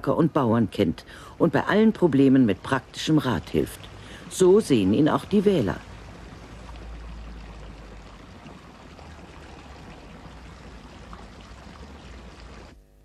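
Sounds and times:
fountain water splashing: 0.0 - 12.8.

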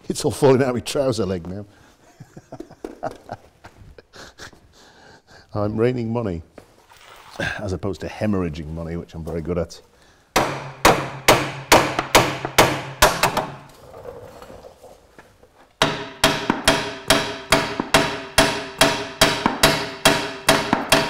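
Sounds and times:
hammer blows on steel: 15.8 - 21.0.

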